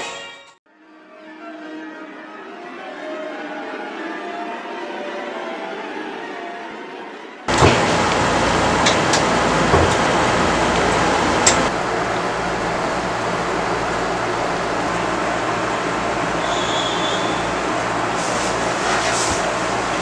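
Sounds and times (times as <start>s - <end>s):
air conditioner blowing air: 7.5s - 20.0s.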